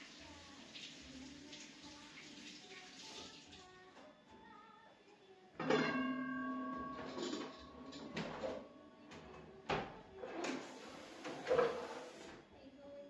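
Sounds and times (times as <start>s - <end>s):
kitchenware clanking in cabinet: 5.6s - 12.4s.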